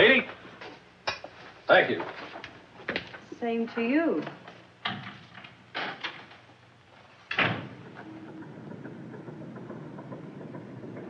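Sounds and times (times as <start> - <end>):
ticking mill machinery: 7.7 - 11.0.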